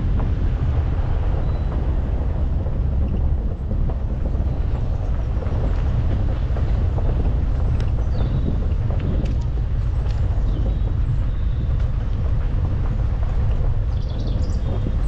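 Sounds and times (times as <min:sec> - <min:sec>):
engine and road rumble: 0:00.0 - 0:15.0.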